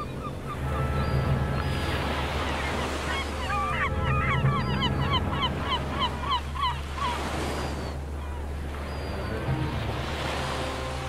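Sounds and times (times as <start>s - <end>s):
surf: 0.0s - 11.0s
wind: 0.0s - 11.0s
animal honking calls: 0.3s - 7.3s.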